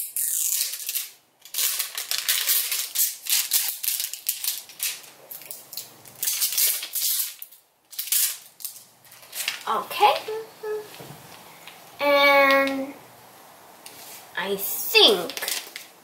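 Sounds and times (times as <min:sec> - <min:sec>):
plastic wrap crinkling: 0:00.0 - 0:11.8, 0:15.0 - 0:16.0.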